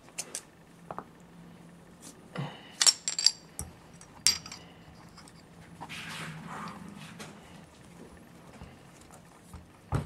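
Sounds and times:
low steady hum: 0:00.0 - 0:10.0
metal parts clinking: 0:02.8 - 0:03.4, 0:04.0 - 0:05.5.

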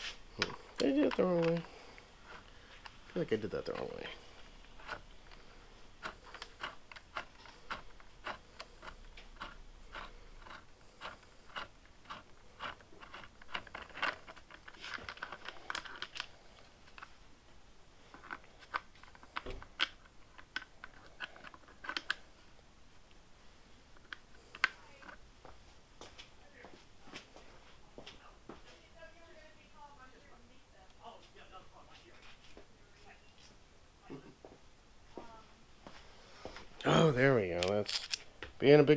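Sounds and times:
small parts clicking and tapping: 0:00.3 - 0:01.7, 0:02.3 - 0:17.2, 0:18.1 - 0:22.2, 0:37.6 - 0:38.5.

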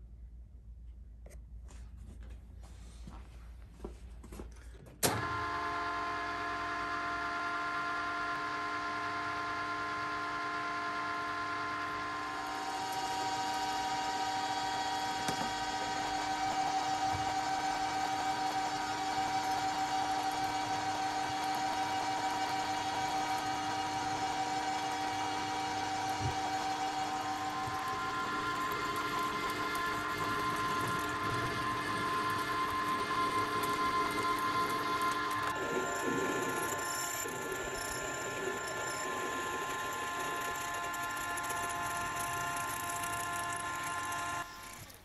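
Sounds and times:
lathe whining: 0:05.1 - 0:45.0
drill cutting metal: 0:10.2 - 0:45.0.

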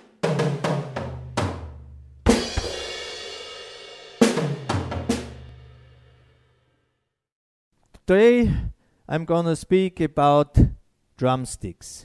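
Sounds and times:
drum tom fills: 0:00.0 - 0:06.1
crash cymbal with bass drum: 0:02.3 - 0:04.5.

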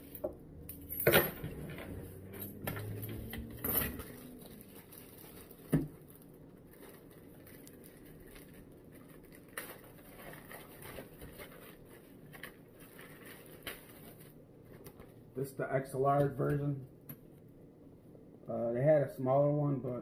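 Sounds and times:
rustling of unpacking: 0:00.8 - 0:15.3.

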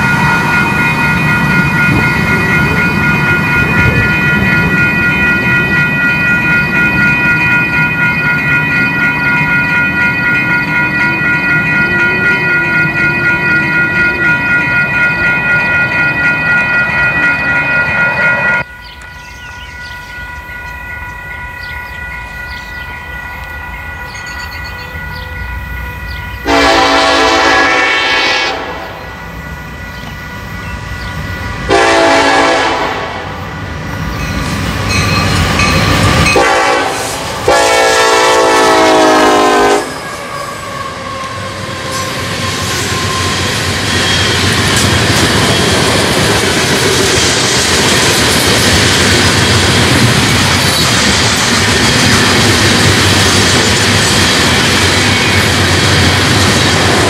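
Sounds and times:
loud passing train: 0:00.0 - 0:57.0
train rumble: 0:00.0 - 0:57.0
locomotive air horn blasts: 0:26.4 - 0:29.0, 0:31.7 - 0:33.3, 0:36.3 - 0:40.1.

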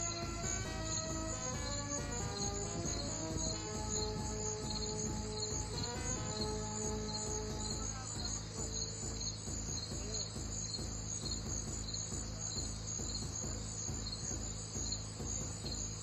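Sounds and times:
crickets chirping: 0:00.0 - 0:16.0
held music notes: 0:00.0 - 0:16.0
steady low hum: 0:00.0 - 0:16.0.

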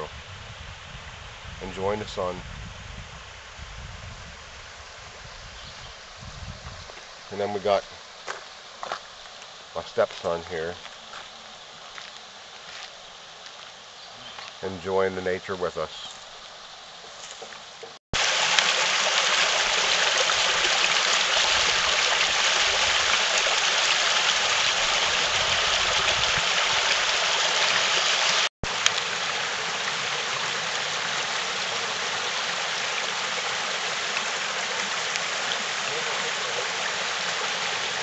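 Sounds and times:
stream rushing over rocks: 0:16.5 - 0:38.0.

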